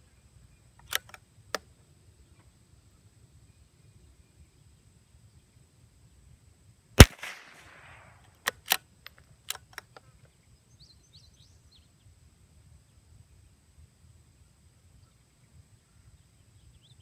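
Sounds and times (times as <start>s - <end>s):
rifle bolt clicks: 0.8s - 1.6s, 7.0s - 10.0s
rifle shot with echo: 7.0s - 8.2s
bird chirps: 15.0s - 17.0s.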